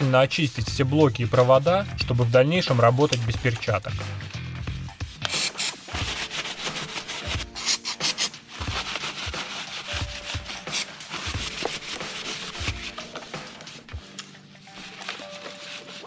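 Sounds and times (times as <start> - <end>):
cloth rag scrubbing: 5.0 - 13.9, 14.7 - 16.0.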